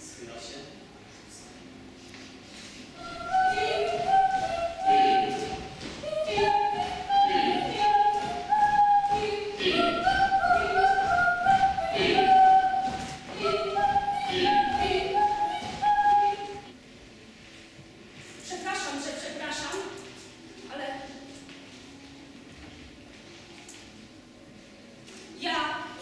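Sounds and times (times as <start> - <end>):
group singing a cappella: 3.0 - 16.7.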